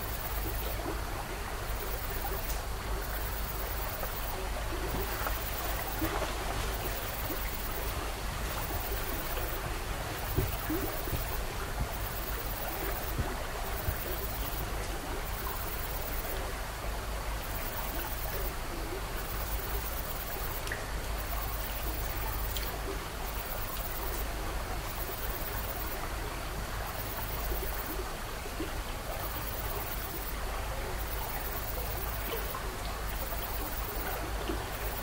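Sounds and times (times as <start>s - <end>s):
faint ticks: 1.8s - 16.4s, 19.2s - 26.1s.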